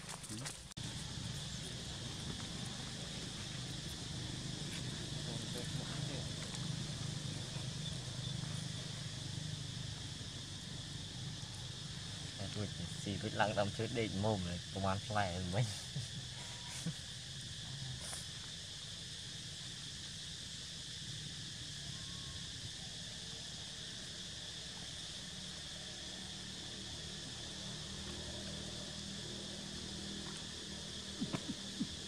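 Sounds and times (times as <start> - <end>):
insects buzzing: 0.0 - 32.0
low outdoor rumble: 0.2 - 13.1.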